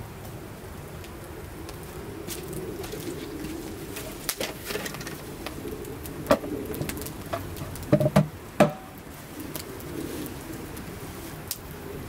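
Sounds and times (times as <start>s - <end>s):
campfire crackling: 0.0s - 12.0s
wooden plank knocking: 7.9s - 8.9s.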